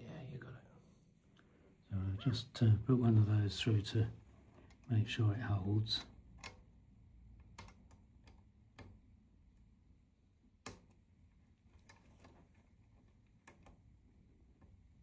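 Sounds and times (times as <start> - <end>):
small metallic clicks: 6.0 - 9.7, 10.6 - 15.0.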